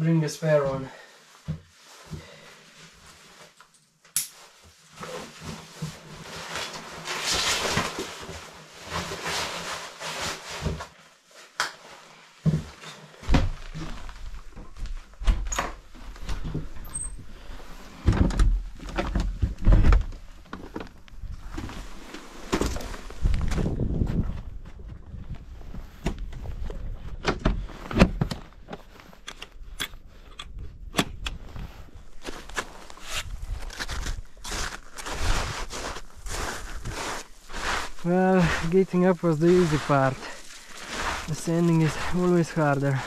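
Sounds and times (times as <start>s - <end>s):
wind rumble on microphone: 23.2s - 27.6s.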